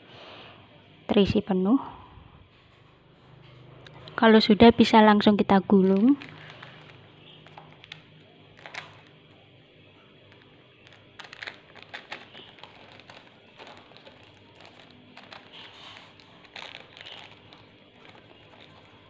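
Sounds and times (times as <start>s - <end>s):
baking paper crinkling: 3.8s - 4.3s, 5.7s - 9.4s, 10.2s - 19.0s.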